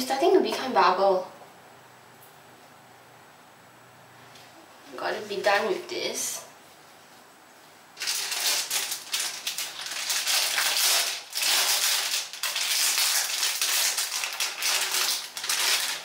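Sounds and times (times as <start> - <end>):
packet crinkling and rustling: 8.0 - 16.0.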